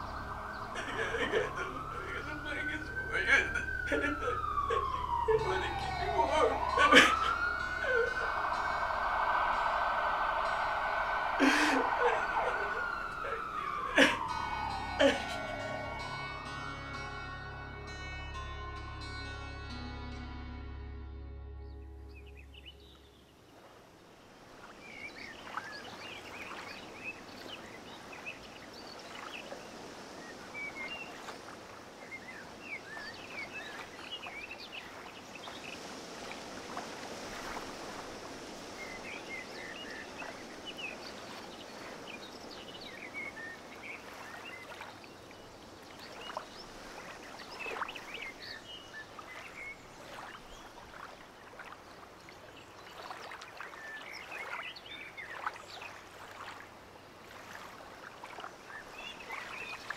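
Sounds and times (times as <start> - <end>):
river water rushing over weir: 0.0 - 17.2
birds chirping: 0.0 - 17.5, 21.6 - 36.6, 37.5 - 57.2, 58.3 - 59.9.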